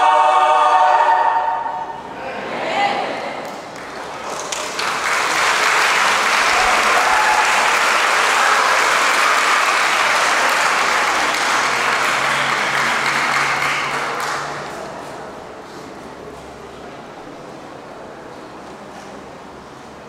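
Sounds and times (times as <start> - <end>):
audience applauding: 3.4 - 15.1.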